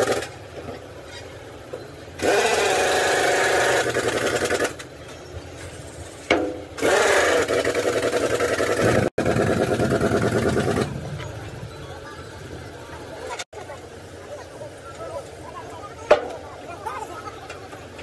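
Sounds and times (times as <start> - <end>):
power tool rattling: 0.0 - 0.4, 2.2 - 4.9, 6.8 - 11.0
steady low hum: 0.0 - 18.0.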